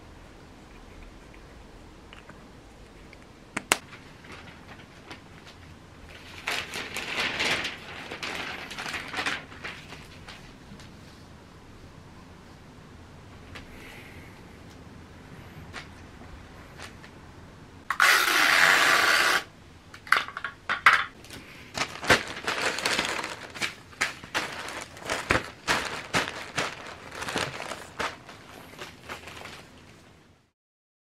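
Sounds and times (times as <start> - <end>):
newspaper rustling and crinkling: 3.8 - 11.0, 21.2 - 30.2.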